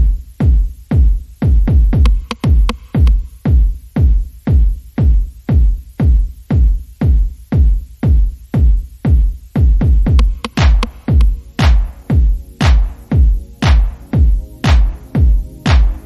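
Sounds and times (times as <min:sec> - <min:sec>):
electronic music with kick drum: 0:00.0 - 0:16.0.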